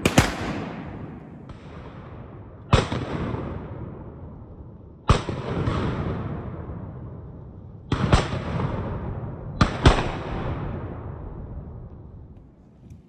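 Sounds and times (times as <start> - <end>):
shotgun shots echoing: 0.0 - 3.5.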